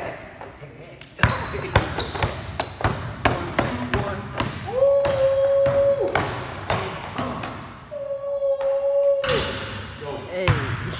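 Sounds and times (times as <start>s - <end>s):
basketball dribbling on court floor: 1.2s - 7.6s.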